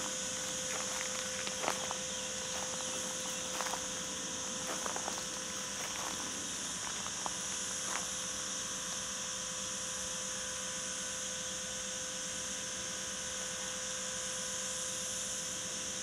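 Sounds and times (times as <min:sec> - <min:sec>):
steady high hiss: 0:00.0 - 0:10.1
faint steady hum: 0:00.0 - 0:16.0.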